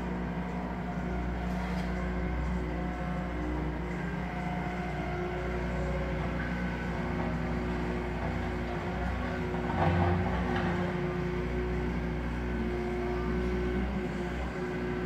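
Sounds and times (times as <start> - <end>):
diesel engine running: 0.0 - 15.0.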